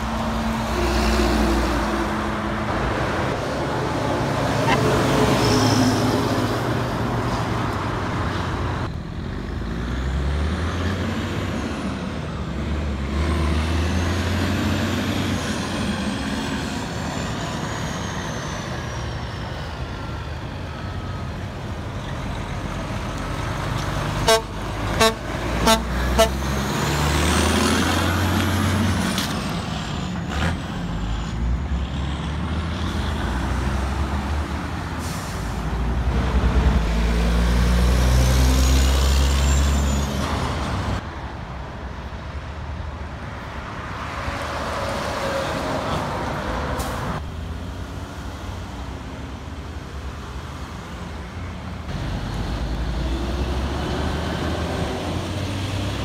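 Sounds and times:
dump trucks driving past: 0.0 - 56.0
short horn toots: 24.3 - 26.4.

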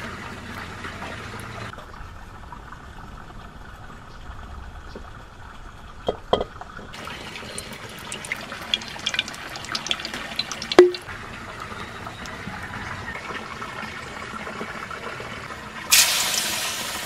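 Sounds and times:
hot oil crackling and popping: 6.0 - 12.4, 15.9 - 17.0
oil hissing: 15.9 - 17.0.

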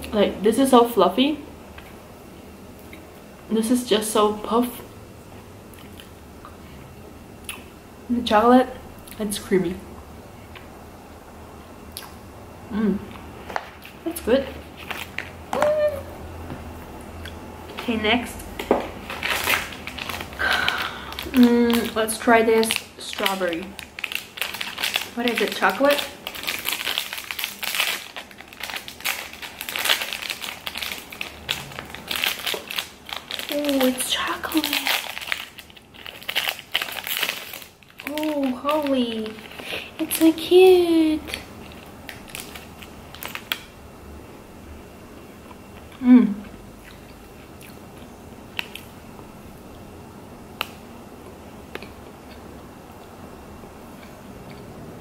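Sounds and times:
plastic wrapper crinkling: 14.6 - 15.8, 18.5 - 40.6, 41.2 - 43.8
person humming: 15.6 - 16.2, 46.0 - 46.4.

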